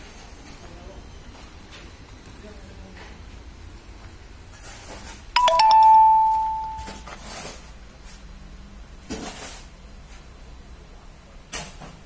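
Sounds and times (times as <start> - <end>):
bell-like chime ringing: 5.4 - 7.0.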